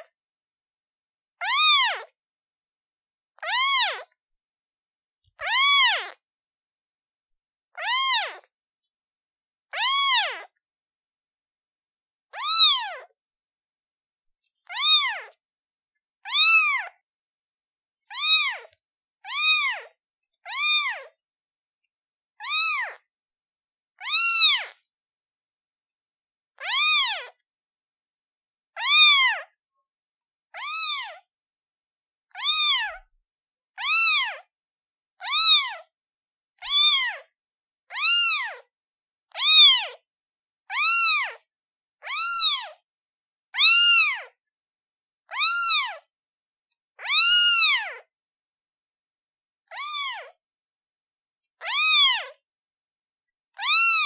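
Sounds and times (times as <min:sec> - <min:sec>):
kitten meowing: 0:01.4 - 0:02.1, 0:03.4 - 0:04.1, 0:05.4 - 0:06.2, 0:07.8 - 0:08.5, 0:09.8 - 0:10.5, 0:12.3 - 0:13.1, 0:14.6 - 0:15.4, 0:16.3 - 0:17.0, 0:18.1 - 0:19.9, 0:20.5 - 0:21.1, 0:22.4 - 0:23.0, 0:24.0 - 0:24.8, 0:26.6 - 0:27.4, 0:28.8 - 0:29.5, 0:30.6 - 0:31.2, 0:32.3 - 0:33.1, 0:33.8 - 0:34.5, 0:35.2 - 0:35.8, 0:36.6 - 0:37.3, 0:37.9 - 0:38.7, 0:39.3 - 0:40.0, 0:40.7 - 0:41.4, 0:42.0 - 0:42.8, 0:43.6 - 0:44.4, 0:45.3 - 0:46.1, 0:47.0 - 0:48.1, 0:49.7 - 0:50.4, 0:51.6 - 0:52.4, 0:53.5 - 0:54.0.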